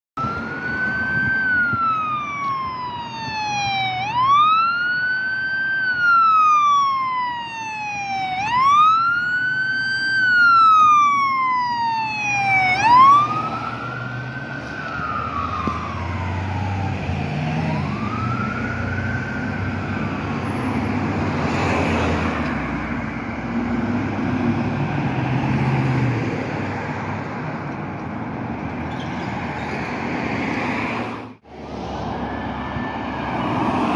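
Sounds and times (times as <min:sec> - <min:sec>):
ambulance siren wailing: 0:00.2 - 0:23.8, 0:31.4 - 0:33.9
vehicle passing: 0:00.2 - 0:27.4, 0:29.4 - 0:33.9
road traffic noise: 0:00.2 - 0:33.9.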